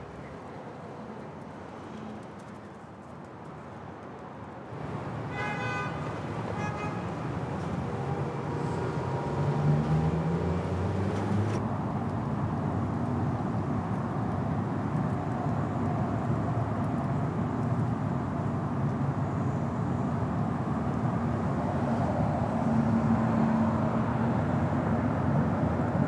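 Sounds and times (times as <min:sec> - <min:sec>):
city street traffic: 0:00.0 - 0:26.0
car horn tooting: 0:05.3 - 0:07.2.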